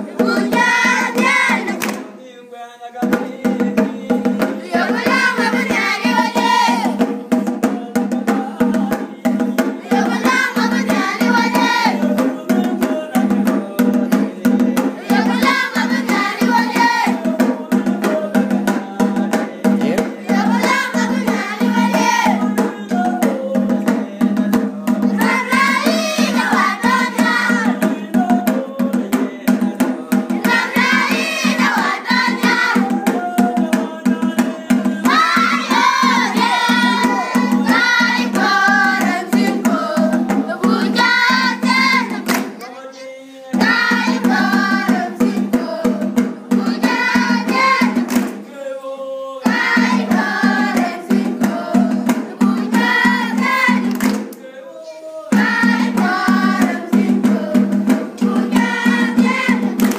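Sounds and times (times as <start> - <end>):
children singing: 0.0 - 1.8, 4.4 - 7.0, 9.8 - 12.3, 14.5 - 17.8, 19.9 - 23.6, 25.0 - 28.6, 30.0 - 59.9
rhythmic percussion: 0.0 - 59.9.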